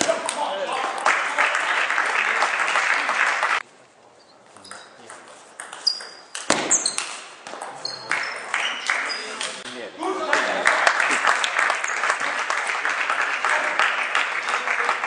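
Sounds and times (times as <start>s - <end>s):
spectators applauding: 0.2s - 3.6s, 8.0s - 15.0s
table tennis ball hits: 4.6s - 8.5s.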